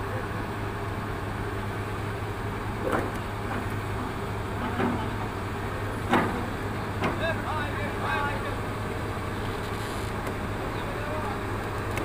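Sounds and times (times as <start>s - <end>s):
excavator diesel engine droning: 0.0s - 12.0s.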